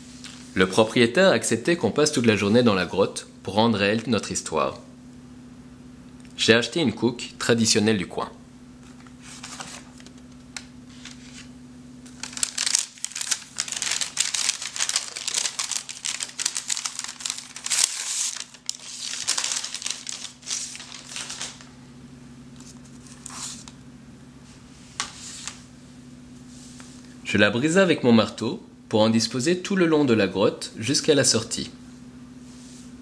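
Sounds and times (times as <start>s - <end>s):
steady low hum: 0.0s - 33.0s
paper crinkling and rustling: 8.8s - 21.8s, 22.5s - 23.8s.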